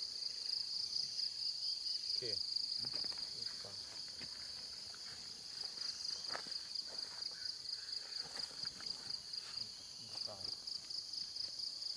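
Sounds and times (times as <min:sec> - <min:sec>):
high-pitched insect chorus: 0:00.0 - 0:11.9.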